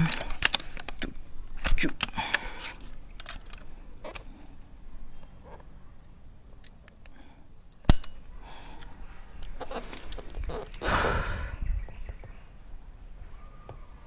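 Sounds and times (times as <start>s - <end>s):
handling clicks and rustles: 0.0s - 10.8s.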